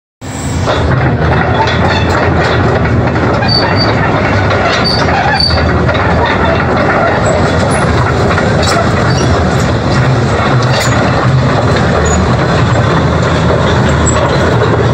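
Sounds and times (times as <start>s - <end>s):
excavator diesel engine running: 0.2s - 14.9s
metallic rattling and clanking: 0.6s - 14.9s
high squeaks: 3.4s - 8.0s, 8.6s - 11.2s.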